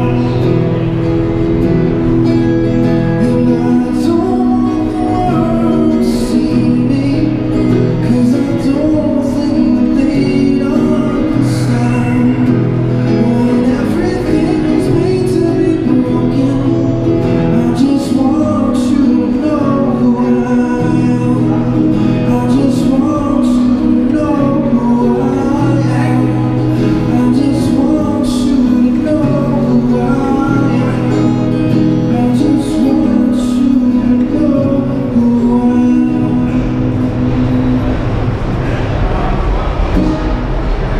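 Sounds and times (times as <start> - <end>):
man singing: 0.0 - 1.6, 2.8 - 38.8
acoustic guitar: 0.0 - 40.9
subway train rumble: 0.0 - 40.9.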